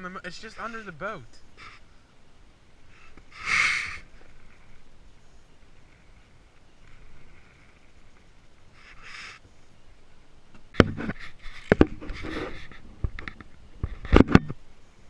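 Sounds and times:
rustling: 0.0 - 9.8, 10.5 - 14.6
fabric rubbing on camera: 10.9 - 12.9.

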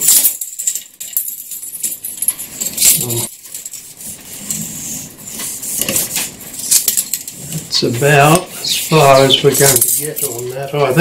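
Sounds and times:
steel coils clinking: 0.0 - 4.0, 5.8 - 7.6, 8.3 - 10.8.

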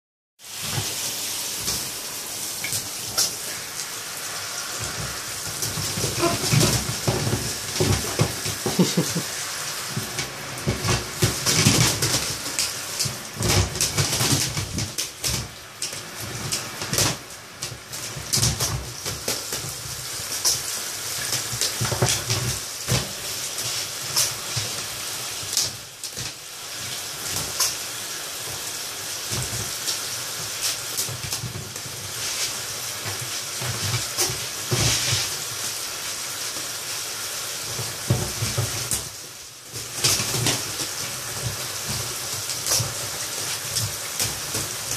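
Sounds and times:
shower spray hissing: 0.4 - 13.5, 19.0 - 44.9
splashing and wing-flapping: 2.6 - 44.9.

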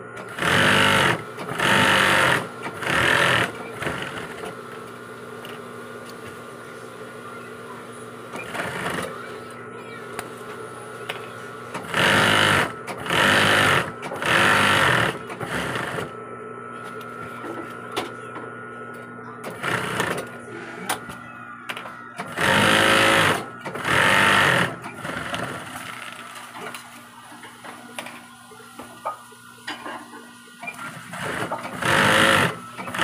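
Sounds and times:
steady machine hum: 0.0 - 33.0
industrial sewing machine stitching: 0.2 - 4.6, 8.4 - 9.2, 11.7 - 16.1, 19.4 - 20.3, 22.2 - 26.2, 30.7 - 33.0.

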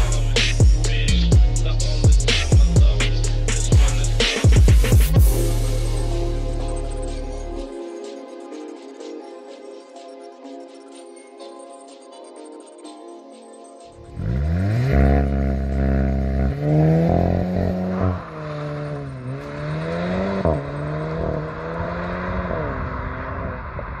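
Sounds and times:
car engine revving hard: 14.1 - 24.0.

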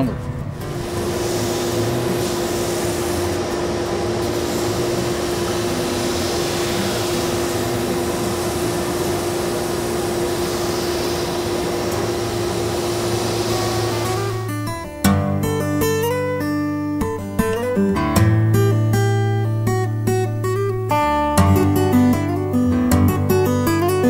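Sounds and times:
grinder sanding leather: 0.6 - 14.5.

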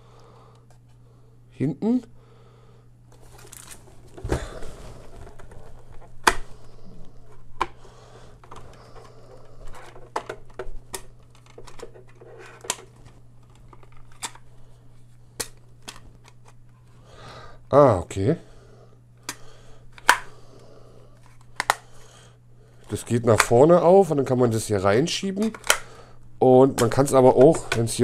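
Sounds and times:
steady low hum: 0.0 - 28.0
soft handling noise: 3.1 - 17.0
plastic printer cassette clicks: 9.7 - 14.4, 20.0 - 20.3, 25.4 - 25.9.

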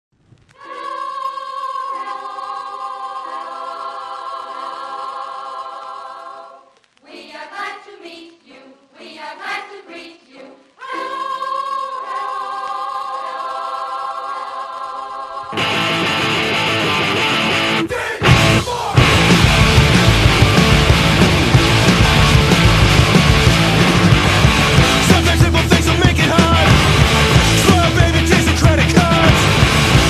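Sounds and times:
choir holding a chord: 0.6 - 28.4
choppy stuttering sound: 15.6 - 30.0.

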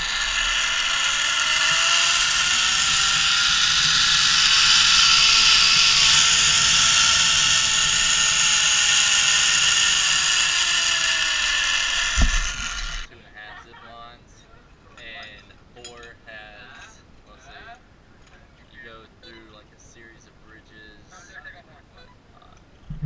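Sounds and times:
zipline pulley whirring on cable: 0.0 - 13.1.

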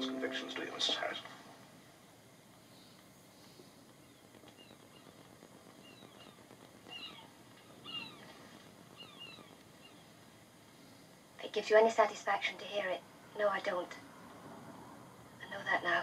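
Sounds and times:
faint high animal chirps: 4.0 - 5.2, 5.8 - 10.1.

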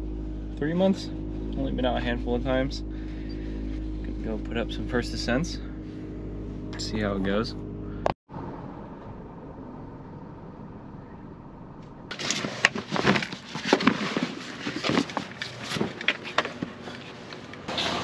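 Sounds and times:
faint steady hum: 0.0 - 13.3.

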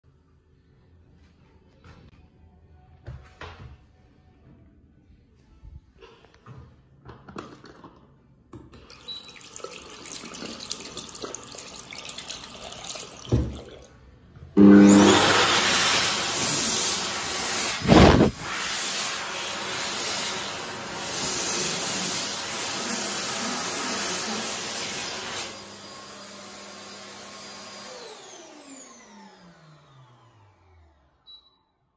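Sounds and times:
hand dryer blowing air: 14.6 - 29.3
motor winding down whine: 27.9 - 31.1.

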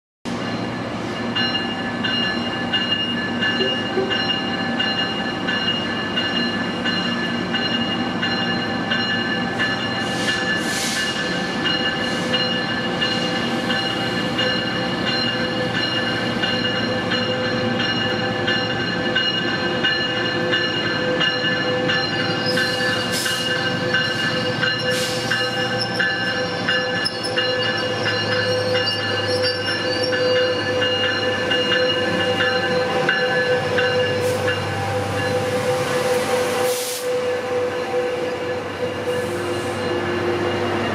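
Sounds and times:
passenger train rolling slowly: 0.3 - 40.9
train wheel squeal: 0.4 - 40.9
brief air hisses: 10.2 - 11.1, 36.6 - 37.1.

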